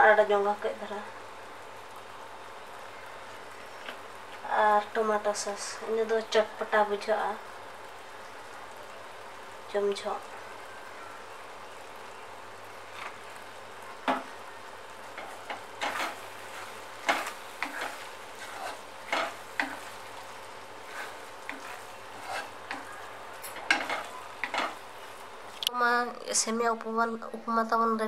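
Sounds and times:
food sizzling: 0:00.0 - 0:27.2
wooden spatula scraping pan: 0:15.1 - 0:25.3.

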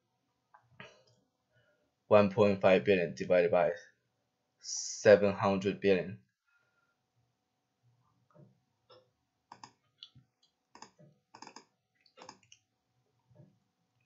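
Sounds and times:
computer mouse clicks: 0:08.9 - 0:12.6.

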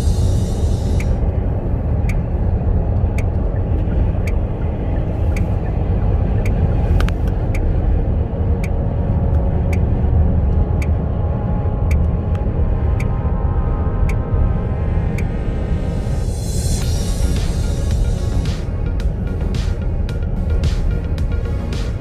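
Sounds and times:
faint ticking: 0:00.0 - 0:01.2
road and engine rumble: 0:00.0 - 0:22.0.

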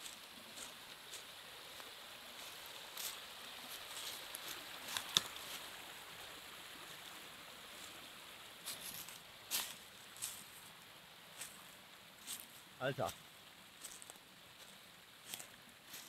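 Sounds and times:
footsteps on dry leaves: 0:00.0 - 0:05.7, 0:08.6 - 0:10.7, 0:11.4 - 0:11.6, 0:12.2 - 0:16.0
brook running over stones: 0:00.0 - 0:16.0.

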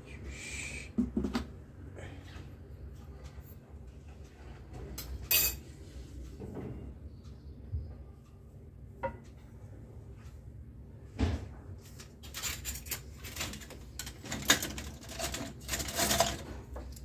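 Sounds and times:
spatula and glass bottle rattling: 0:12.3 - 0:16.5.

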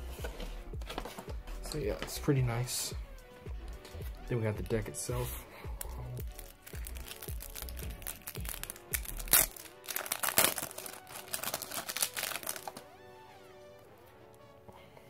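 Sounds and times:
plastic shrink wrap crinkling: 0:05.8 - 0:12.8.

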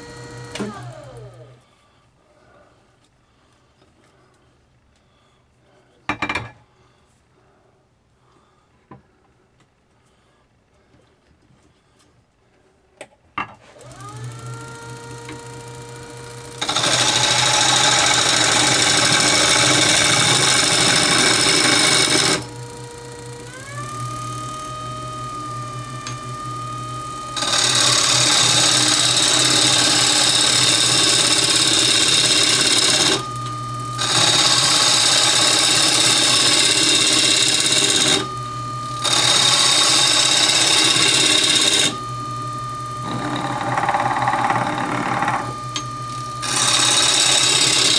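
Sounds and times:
gouge cutting spinning wood: 0:00.0 - 0:01.4, 0:13.8 - 0:47.9
lathe motor whine: 0:00.0 - 0:01.9, 0:13.8 - 0:47.9.

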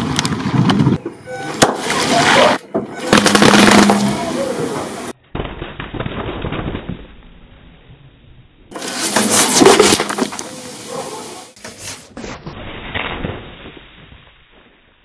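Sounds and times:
cans bursting under tyre: 0:03.0 - 0:04.3, 0:08.7 - 0:10.7
soda spraying hiss: 0:08.8 - 0:12.1.

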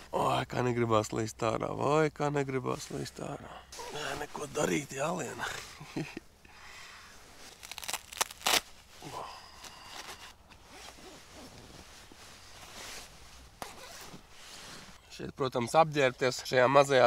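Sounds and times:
sleeping bag fabric rustling: 0:07.3 - 0:15.0
fabric crinkles and snaps: 0:07.4 - 0:09.0.

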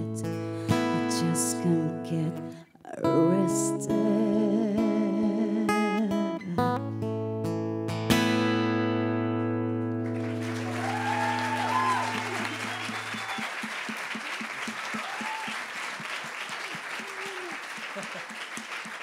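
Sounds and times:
acoustic guitar chord ringing: 0:06.4 - 0:12.6
audience applause and cheering: 0:10.1 - 0:19.0.

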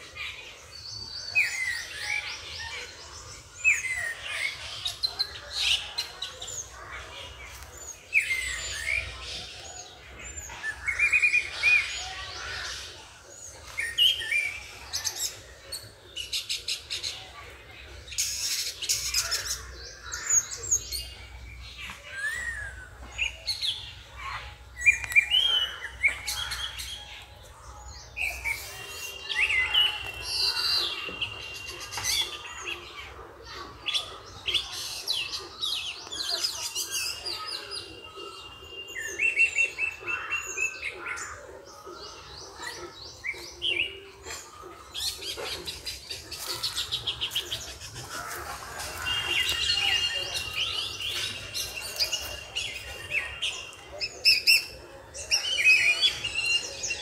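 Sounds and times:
birds chirping and trilling: 0:00.0 - 0:57.0.

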